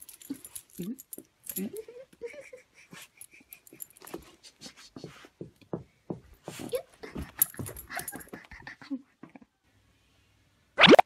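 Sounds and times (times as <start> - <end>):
dog panting: 6.4 - 8.9.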